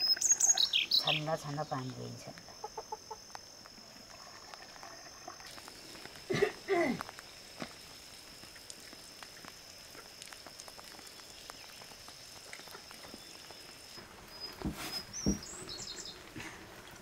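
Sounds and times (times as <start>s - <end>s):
dull knocks: 14.6s - 15.5s.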